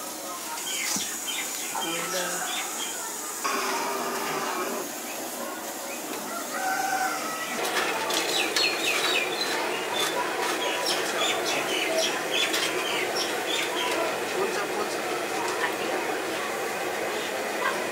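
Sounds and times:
chickens chirping: 0.4 - 14.2.

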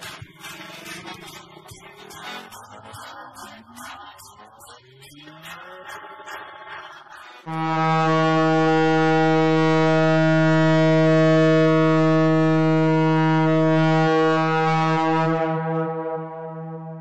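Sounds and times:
low horn blast: 7.5 - 17.0.

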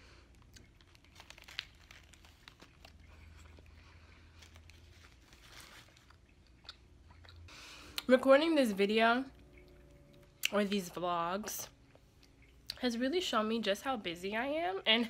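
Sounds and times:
low steady hum: 0.0 - 15.0
chewing: 0.2 - 8.1
foil wrapper crinkling: 0.3 - 6.3.

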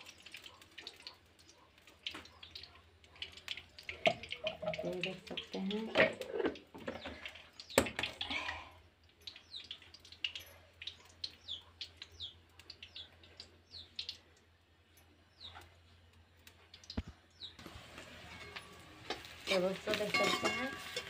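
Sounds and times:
small birds chirping: 0.0 - 3.5, 6.8 - 17.7.

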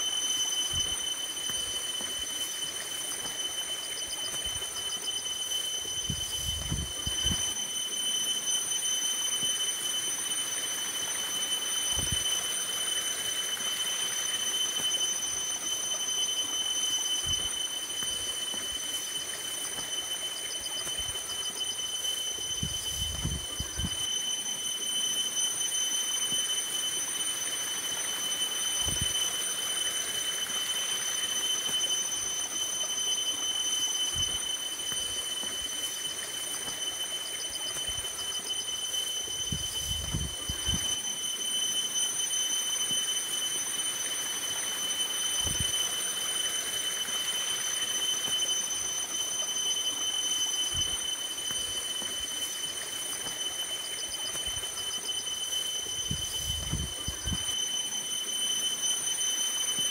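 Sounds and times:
high-pitched whine: 0.0 - 59.9.

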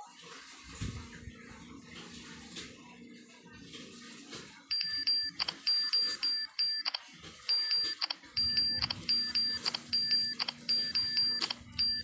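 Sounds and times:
keyboard key-press beeps: 4.7 - 12.0.

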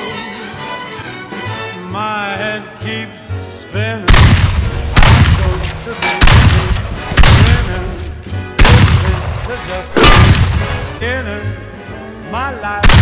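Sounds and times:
swing song with singing: 0.0 - 4.3, 8.9 - 10.0, 10.9 - 13.0
loud gunshots: 4.1 - 5.6, 6.2 - 8.0, 8.6 - 11.0.

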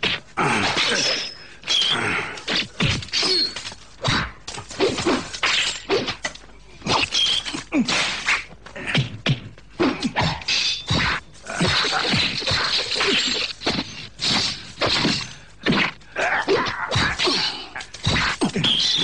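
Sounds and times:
fight blows and swishes: 10.2 - 18.7.

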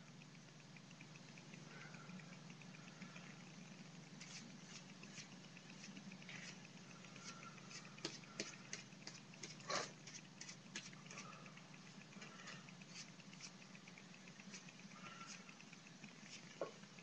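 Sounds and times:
steady low hum: 0.0 - 17.0
paintbrush scraping: 4.1 - 13.7, 14.4 - 16.8.

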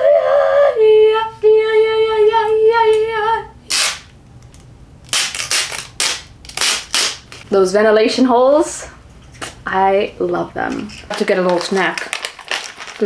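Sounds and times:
plastic panel crackling: 11.1 - 13.0.

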